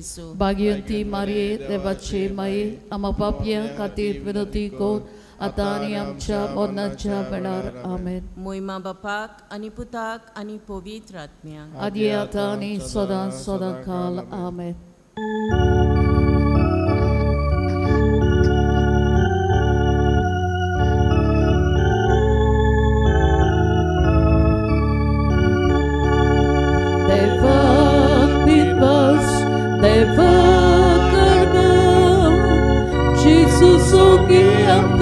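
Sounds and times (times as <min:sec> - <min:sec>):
person singing: 0:00.6 - 0:08.0, 0:11.7 - 0:14.5, 0:27.1 - 0:35.0
organ playing a hymn: 0:15.2 - 0:35.0.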